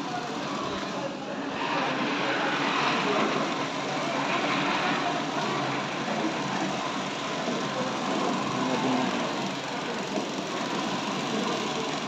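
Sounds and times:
crane diesel engine running: 0:01.8 - 0:12.0.

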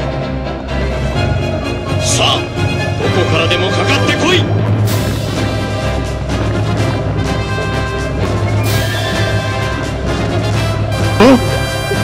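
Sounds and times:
orchestral music with drums: 0:00.0 - 0:12.0.

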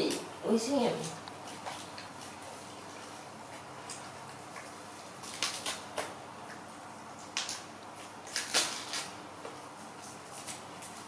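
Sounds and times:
faint room hum: 0:00.0 - 0:11.0
crisp crunches of seed pods: 0:07.2 - 0:09.2.

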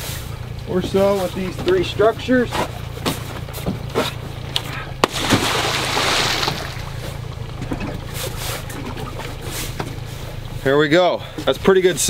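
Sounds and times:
low boat hum: 0:00.0 - 0:12.0
object splashing into water: 0:05.0 - 0:07.2.

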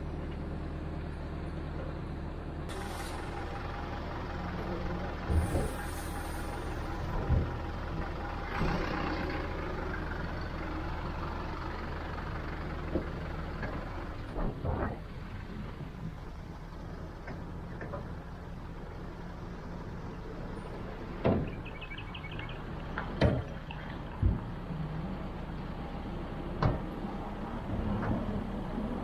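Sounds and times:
vehicle engine running: 0:00.0 - 0:29.0
short thumps and clunks: 0:21.2 - 0:21.6, 0:23.0 - 0:24.6.

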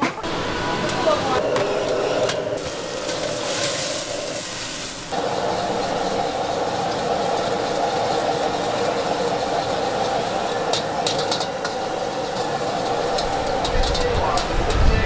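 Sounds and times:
food frying sizzle: 0:01.7 - 0:14.5.

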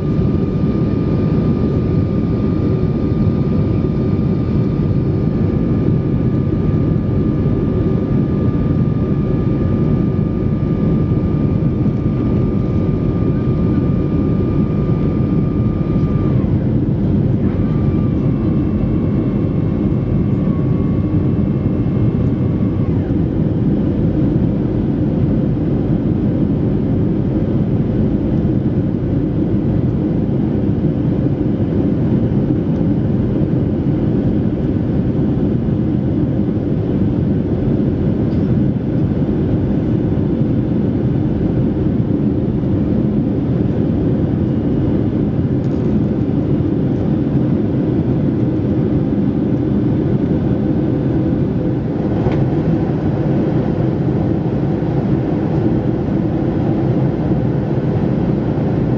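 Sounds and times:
airflow over fuselage: 0:00.0 - 0:26.3
jet engines rumbling: 0:00.0 - 0:58.9.

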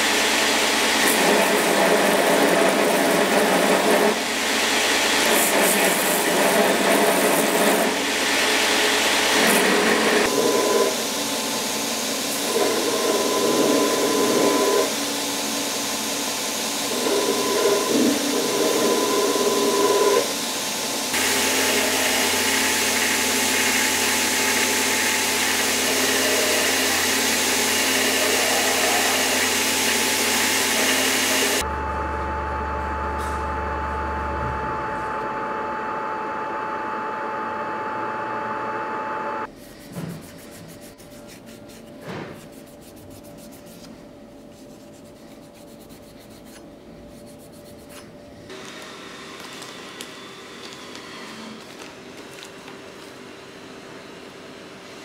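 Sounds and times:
machine hum with high whine: 0:00.0 - 0:39.5
belt grinder grinding steel: 0:21.2 - 0:31.6.

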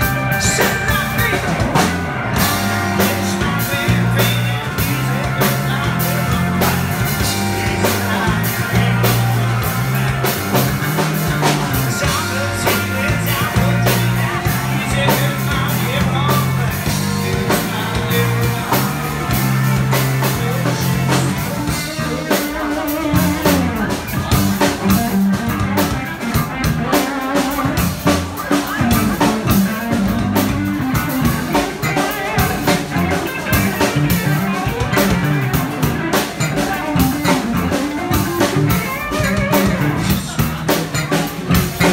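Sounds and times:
bass line: 0:00.0 - 0:41.9
drum kit with cymbals: 0:00.0 - 0:41.9
electric guitar: 0:00.0 - 0:41.9.

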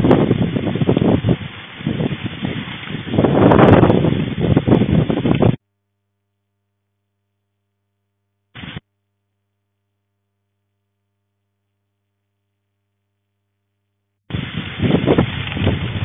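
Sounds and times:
wind and heavy rain: 0:00.0 - 0:05.6, 0:08.6 - 0:08.8, 0:14.3 - 0:16.0.

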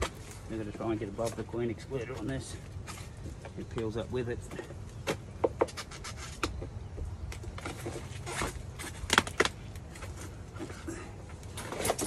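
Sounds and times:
clicks and knocks of hive parts: 0:04.5 - 0:10.2
scrape of prying: 0:05.6 - 0:06.6.

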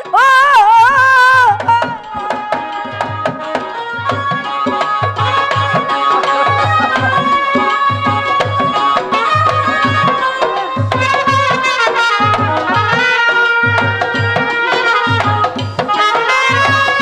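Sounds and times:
hand drum beating: 0:00.0 - 0:17.0
sustained melody line: 0:01.0 - 0:17.0.

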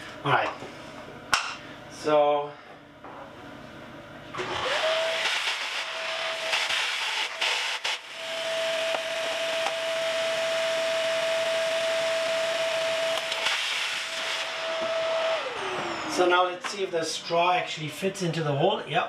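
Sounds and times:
vacuum motor winding down: 0:04.3 - 0:16.7
vacuum cleaner running: 0:04.3 - 0:18.6.

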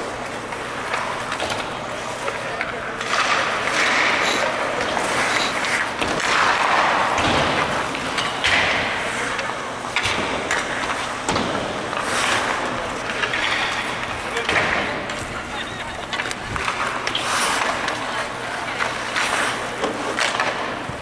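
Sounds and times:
skates scraping ice: 0:00.0 - 0:21.0
puck hitting boards: 0:00.5 - 0:15.4, 0:16.0 - 0:21.0
sticks and pucks knocking: 0:16.0 - 0:20.9.

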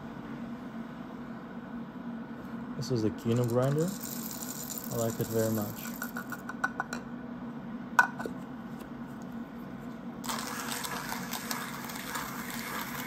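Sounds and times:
coffee grinder crunching: 0:03.2 - 0:06.5, 0:10.2 - 0:13.0.

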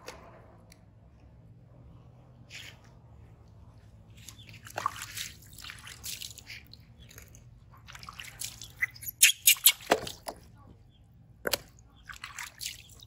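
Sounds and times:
water splashing and dripping: 0:04.1 - 0:10.4, 0:11.4 - 0:13.0.

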